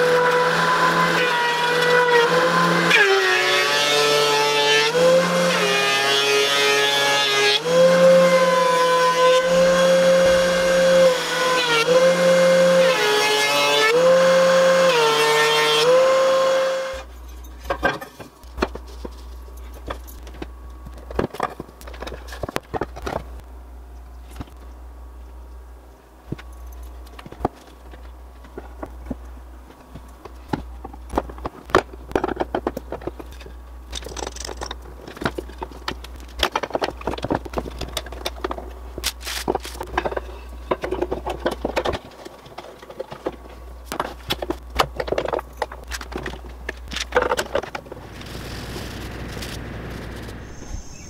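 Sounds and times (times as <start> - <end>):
wood and metal clamps clattering: 17.4 - 20.4, 30.5 - 47.9.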